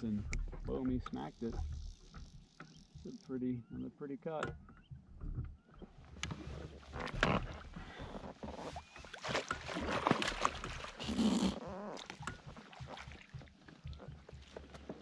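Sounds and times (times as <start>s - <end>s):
net scooping through water: 8.8s - 13.4s.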